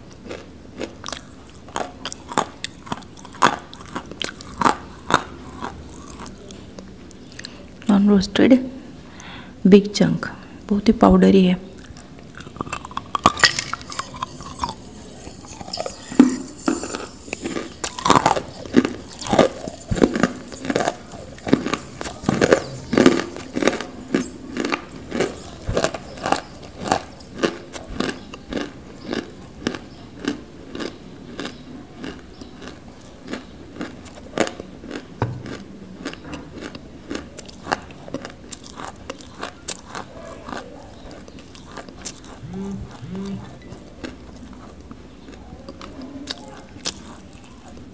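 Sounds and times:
clay crunching while chewed: 0.0s - 7.6s, 11.8s - 47.9s
biting crunch: 11.8s - 47.9s.

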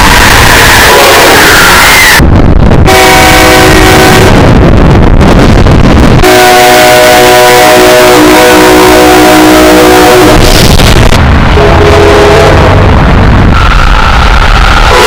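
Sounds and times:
distorted train horn blasts: 0.0s - 2.2s, 2.8s - 4.5s, 6.2s - 10.5s, 11.5s - 12.8s.

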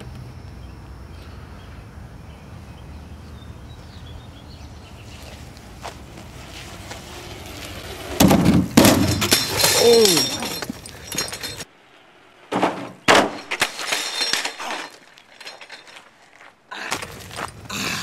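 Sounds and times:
bike crashing onto asphalt: 6.5s - 11.6s, 12.5s - 16.2s.

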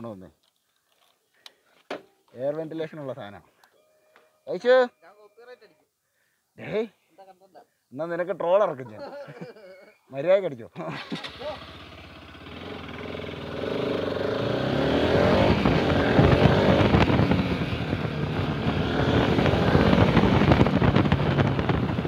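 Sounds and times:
motorcycle engine accelerating: 11.2s - 22.0s.

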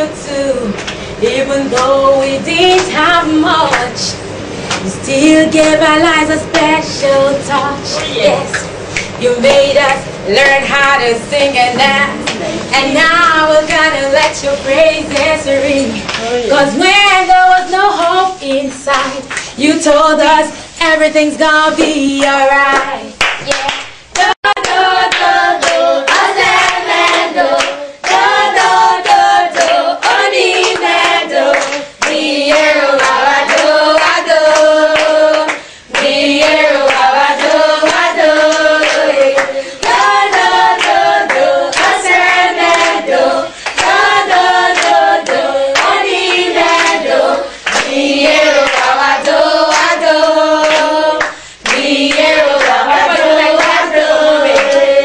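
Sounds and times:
group singing: 0.0s - 4.2s, 4.8s - 55.0s
rhythmic hand clapping: 1.7s - 2.0s, 2.6s - 4.0s, 4.6s - 6.8s, 14.9s - 16.3s, 18.8s - 19.5s, 21.8s - 55.0s.

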